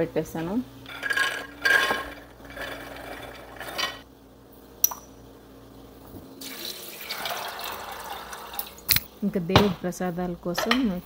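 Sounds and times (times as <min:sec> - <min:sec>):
water pouring into a pot: 0:06.4 - 0:08.9.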